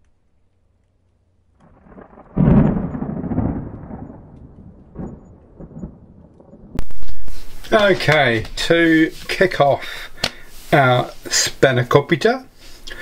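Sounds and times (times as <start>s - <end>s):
loud boom with deep rumble: 1.6s - 7.6s.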